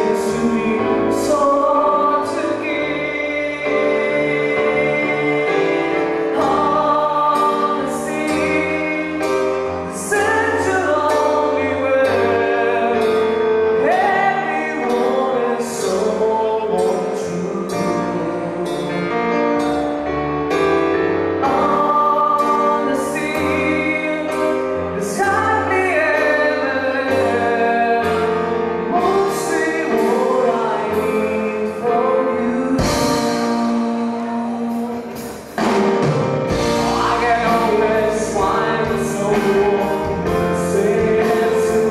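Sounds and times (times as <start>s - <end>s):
live band playing a slow ballad: 0.0s - 41.9s
person singing: 0.0s - 41.9s.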